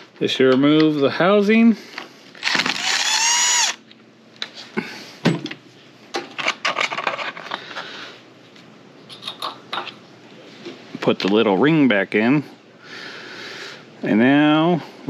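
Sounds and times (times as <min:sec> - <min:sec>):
cordless drill whine: 0:02.4 - 0:03.8.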